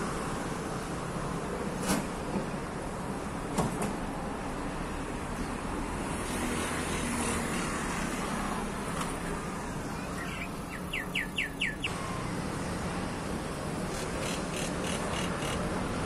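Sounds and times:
road traffic rumble: 0.0s - 16.0s
bird whistling song: 10.2s - 11.9s.

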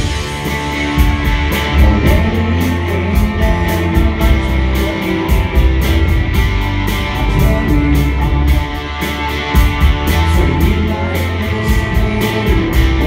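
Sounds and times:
electric guitar strumming: 0.0s - 13.0s
rock band playing live: 0.0s - 13.0s.

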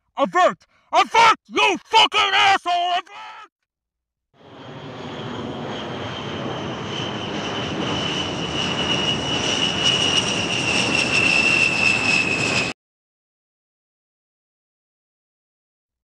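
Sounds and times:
jet airliner engine whine: 4.4s - 12.8s.

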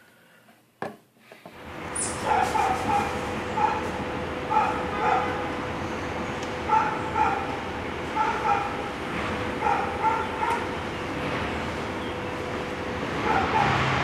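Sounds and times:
steady background noise: 0.0s - 14.0s
dog yipping: 2.0s - 3.9s, 4.5s - 5.3s, 6.7s - 7.5s, 8.2s - 8.8s, 9.6s - 10.6s, 13.2s - 13.8s.

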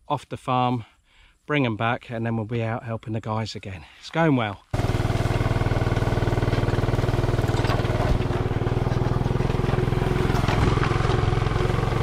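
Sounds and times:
vehicle engine throbbing: 4.8s - 12.0s.

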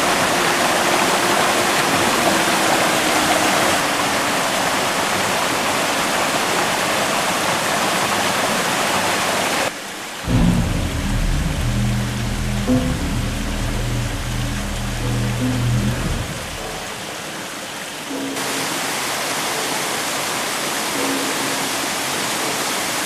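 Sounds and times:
stream rushing over rocks: 0.0s - 23.0s
music: 10.3s - 16.8s.

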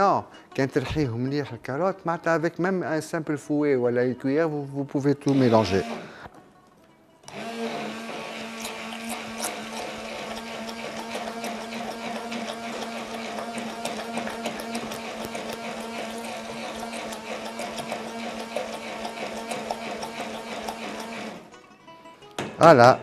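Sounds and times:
immersion blender running: 5.3s - 6.2s, 7.3s - 21.5s.

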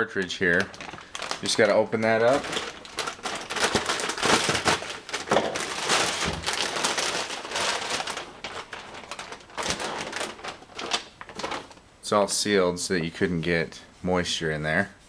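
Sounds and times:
foil pouch crinkling: 0.0s - 11.8s.

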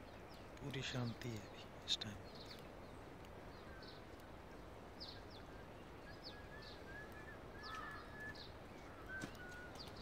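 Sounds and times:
faint outdoor hiss: 0.0s - 10.0s
small birds chirping: 0.0s - 10.0s
thin whistled bird notes: 5.0s - 10.0s.

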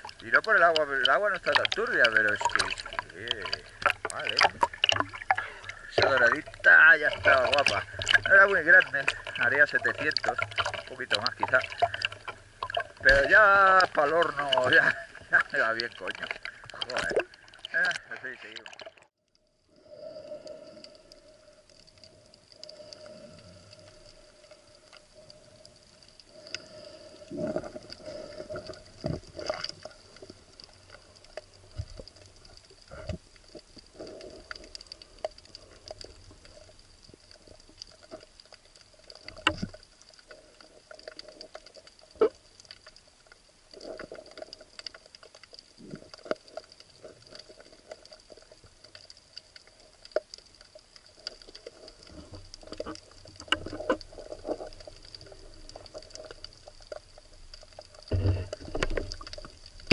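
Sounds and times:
rush of water: 0.0s - 19.1s
underwater crackling and clicks: 0.0s - 59.9s.

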